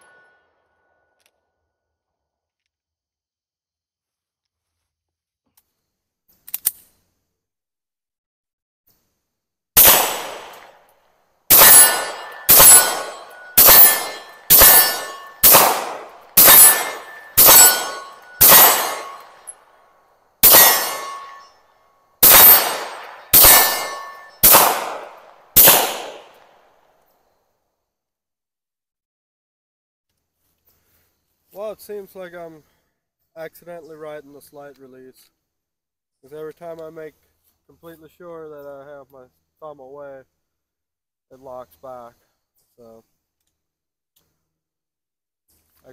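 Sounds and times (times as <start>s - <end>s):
sharp click: 6.4s - 6.9s
pistol shots: 9.8s - 10.8s, 11.5s - 19.5s, 20.4s - 21.5s, 22.2s - 26.6s.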